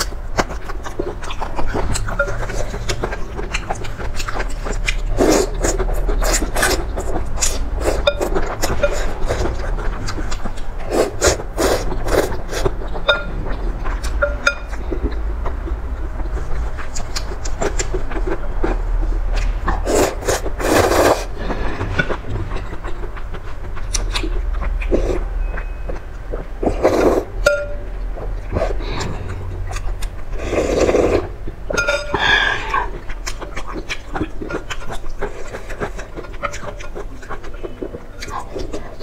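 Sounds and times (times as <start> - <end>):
wet chewing: 0.0 - 39.0
slurping noodles: 3.8 - 10.1, 10.8 - 12.8, 19.8 - 22.0, 26.6 - 27.4, 30.3 - 31.3.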